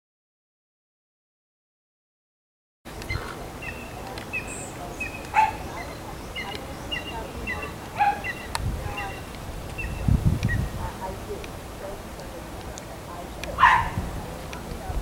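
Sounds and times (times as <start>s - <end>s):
sharp animal calls: 2.9s - 11.3s, 13.2s - 14.2s
animal chirping: 3.0s - 10.7s.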